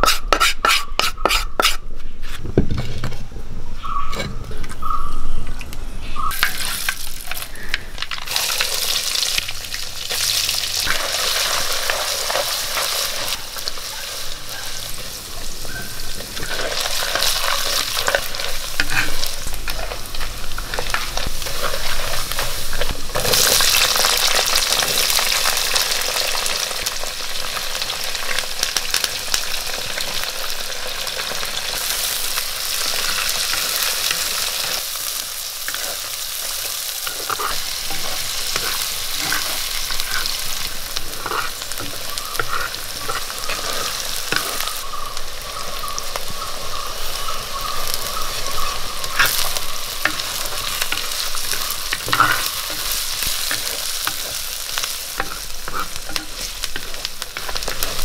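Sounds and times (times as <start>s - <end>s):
spatula scraping pot: 0.0s - 2.9s, 16.4s - 22.5s, 37.0s - 44.6s, 49.1s - 58.0s
food sizzling in hot oil: 6.3s - 58.0s.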